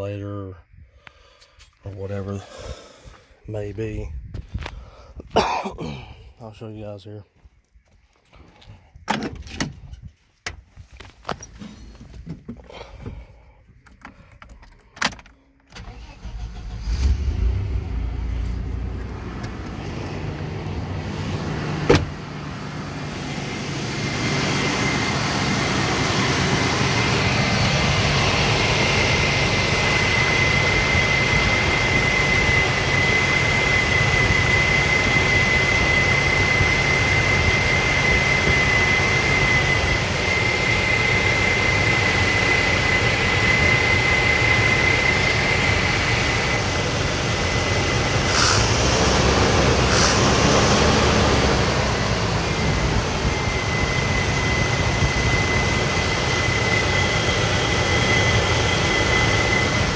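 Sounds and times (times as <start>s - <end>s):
car engine starting and idling: 11.2s - 59.9s
high whine: 15.6s - 59.9s.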